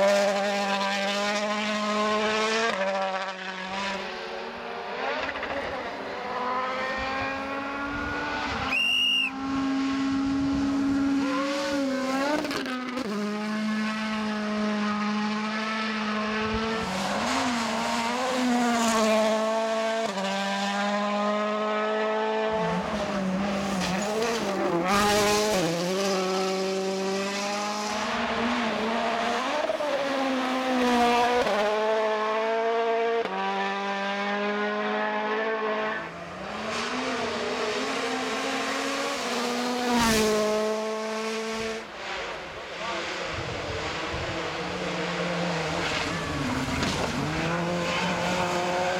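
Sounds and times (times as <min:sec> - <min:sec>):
rally car engine revving: 0:00.0 - 0:08.7, 0:09.4 - 0:48.9
high whistle: 0:08.7 - 0:09.4.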